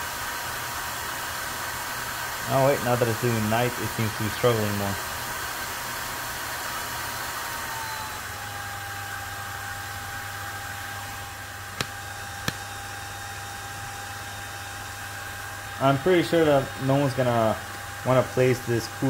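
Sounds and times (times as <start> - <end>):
cooler fan rushing with high whine: 0.0 - 19.0
sharp clicks: 11.8 - 12.7.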